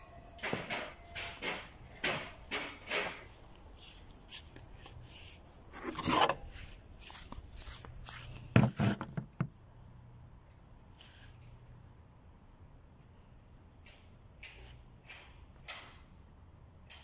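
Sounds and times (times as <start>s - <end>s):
close knocks and bumps: 8.5s - 9.6s.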